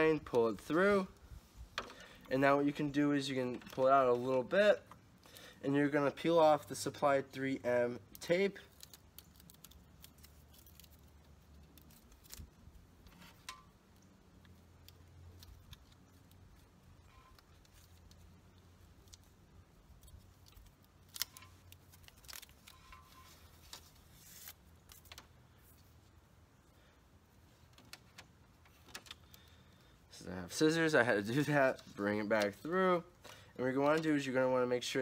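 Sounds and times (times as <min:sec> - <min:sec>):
plastic clicks and crinkles: 0:08.1 - 0:25.9, 0:27.5 - 0:29.8.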